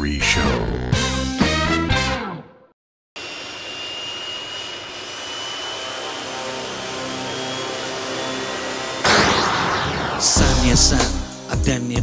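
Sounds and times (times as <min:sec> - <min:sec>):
jet engine rushing and whine: 0:03.2 - 0:11.5
music jingle: 0:10.3 - 0:12.0.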